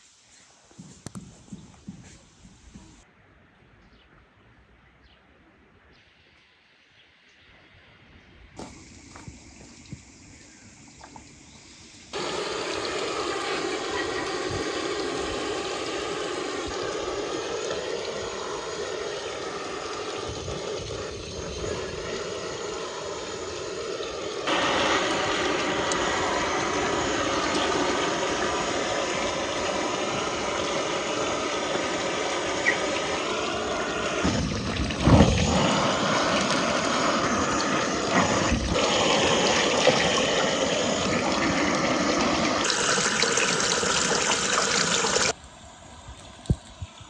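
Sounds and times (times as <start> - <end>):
blow torch hissing: 12.0 - 45.4
water pouring into plastic tub: 12.2 - 45.4.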